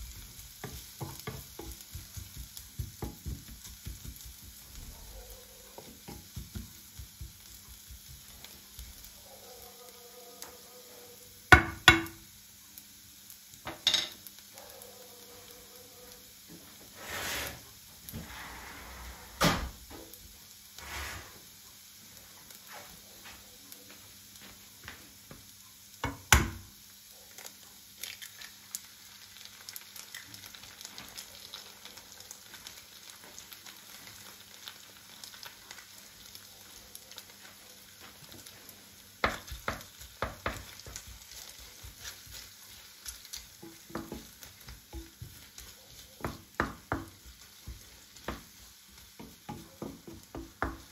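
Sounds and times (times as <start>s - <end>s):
food sizzling in a frying pan: 0.0s - 50.9s
utensil knocking and scraping pan: 43.6s - 48.4s.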